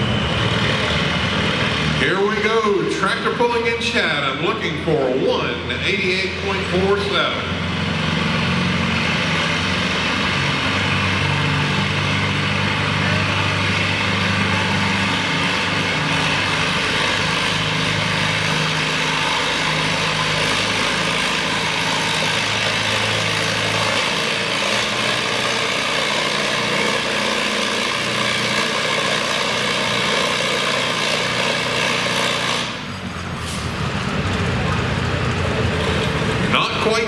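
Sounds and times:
tractor engine under load: 0:00.0 - 0:37.0.

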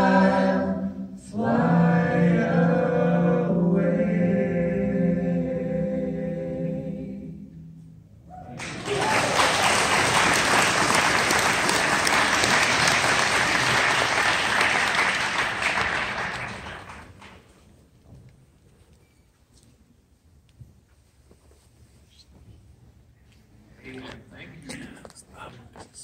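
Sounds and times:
congregation applauding: 0:08.5 - 0:17.4.

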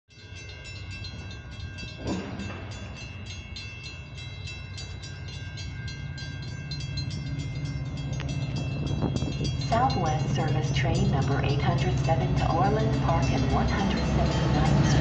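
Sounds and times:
crossing warning bell ringing: 0:00.1 - 0:15.0
diesel train rumble: 0:00.2 - 0:15.0.

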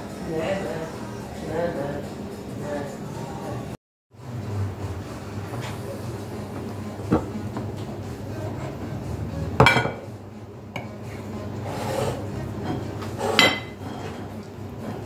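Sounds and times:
tableware clinking: 0:09.6 - 0:10.1, 0:11.7 - 0:15.0.

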